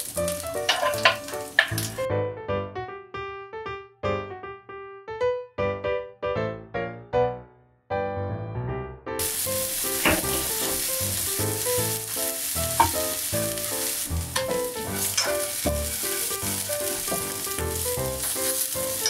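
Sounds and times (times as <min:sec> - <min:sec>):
chopsticks clicking and scraping pan: 0:00.0 - 0:02.0, 0:10.0 - 0:19.0
food sizzling in frying pan: 0:00.0 - 0:02.1, 0:09.2 - 0:19.0
background piano music: 0:00.0 - 0:19.0.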